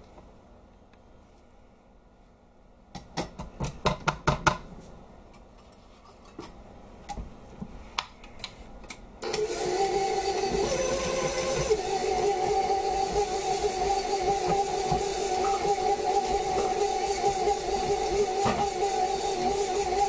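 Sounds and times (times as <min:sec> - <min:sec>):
stand mixer running: 0:09.2 - 0:20.0.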